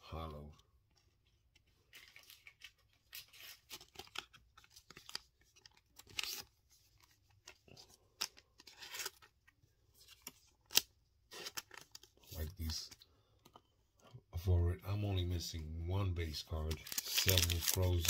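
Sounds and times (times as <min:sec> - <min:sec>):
plastic card sleeve crinkling: 0:00.9 - 0:13.6, 0:16.5 - 0:18.0.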